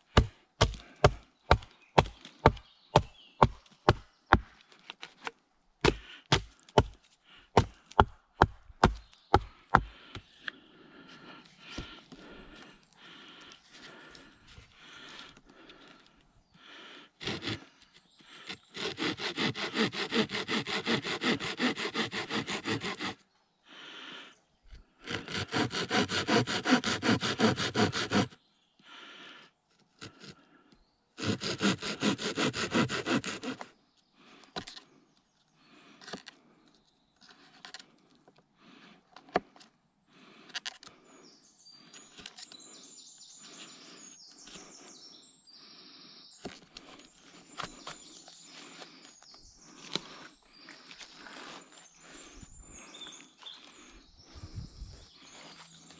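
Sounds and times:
handsaw cutting wood: 0:17.2 - 0:17.7, 0:18.4 - 0:23.2, 0:25.0 - 0:28.4, 0:30.0 - 0:30.4, 0:31.2 - 0:33.7.

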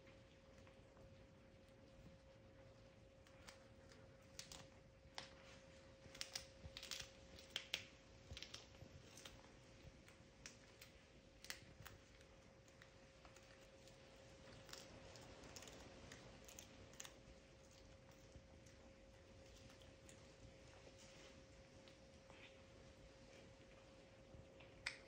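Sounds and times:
faint steady hum: 0:00.0 - 0:25.0
cat chewing fish bones: 0:03.1 - 0:21.0.

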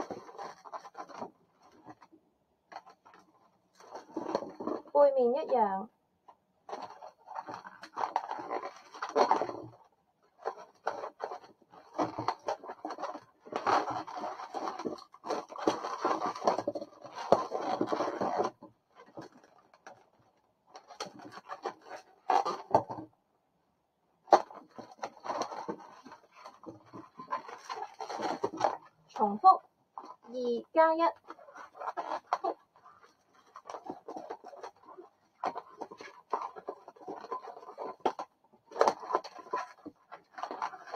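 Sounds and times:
balloons squeaking and rubbing: 0:06.7 - 0:09.8, 0:24.4 - 0:40.9.

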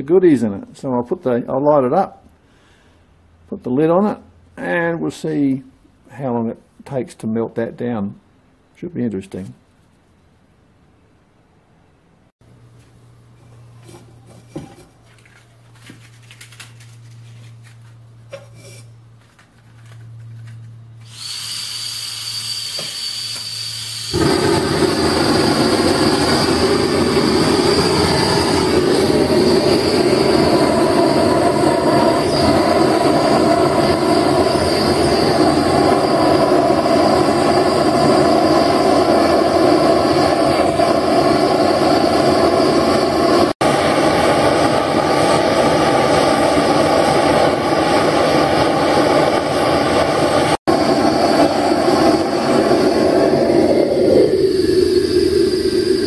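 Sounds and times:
gas torch hissing: 0:21.0 - 0:44.3, 0:50.0 - 0:56.0
gas torch burning loudly: 0:21.0 - 0:56.0.

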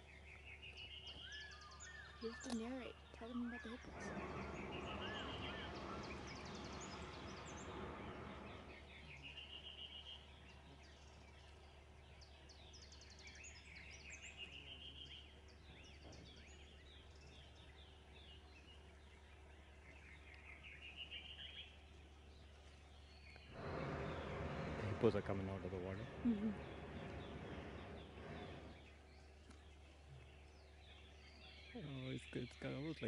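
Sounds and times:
birds singing: 0:00.0 - 0:33.0
propane burner roaring: 0:03.6 - 0:10.6, 0:23.2 - 0:31.0.

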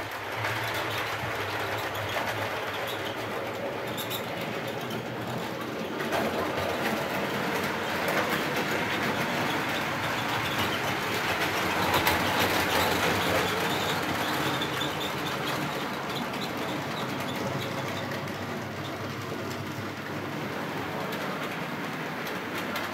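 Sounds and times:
clicking over rail joints: 0:00.0 - 0:22.9.

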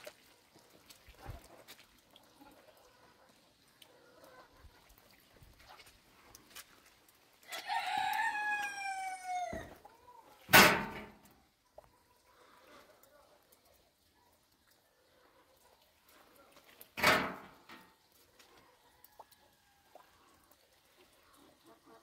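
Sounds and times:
rooster crowing: 0:07.5 - 0:09.8.

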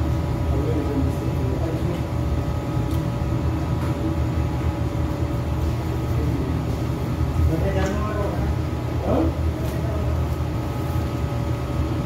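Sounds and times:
air conditioner humming: 0:00.0 - 0:12.0.

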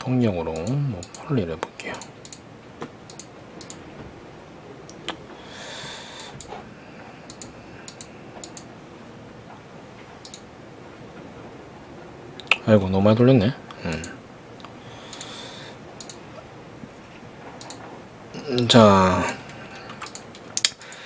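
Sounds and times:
computer mouse clicking: 0:00.5 - 0:02.4, 0:03.1 - 0:03.8, 0:07.3 - 0:08.7, 0:10.2 - 0:10.4, 0:14.0 - 0:15.3, 0:16.0 - 0:16.2, 0:17.6 - 0:17.8, 0:19.8 - 0:21.0.

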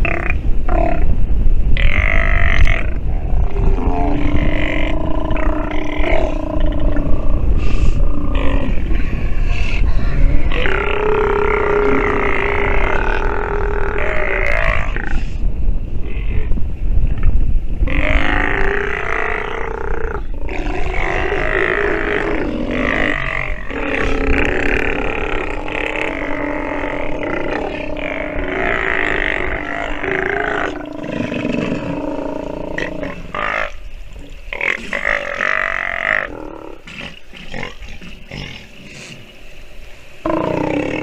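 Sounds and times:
sea lion growling roars: 0:01.8 - 0:09.0, 0:10.1 - 0:15.2, 0:17.8 - 0:33.8.

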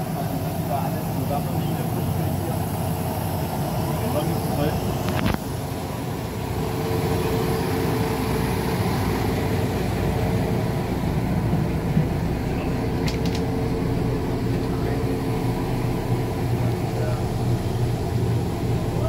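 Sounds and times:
diesel railbus engine running: 0:00.0 - 0:19.0
sharp clicks: 0:13.0 - 0:13.5.

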